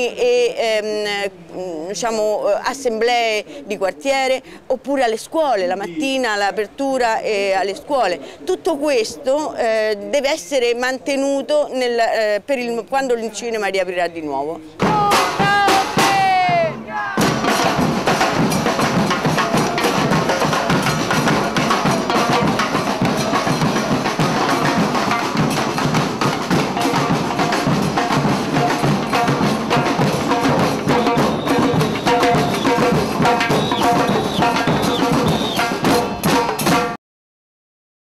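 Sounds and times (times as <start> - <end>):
drums and percussion playing: 14.8 - 37.0
pitched melodic notes: 26.8 - 36.6.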